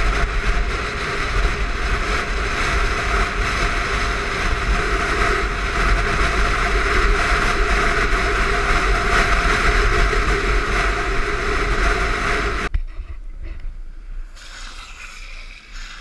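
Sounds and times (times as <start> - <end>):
longboard wheels rolling on asphalt: 0.0 - 12.7
wind on microphone: 0.0 - 16.0.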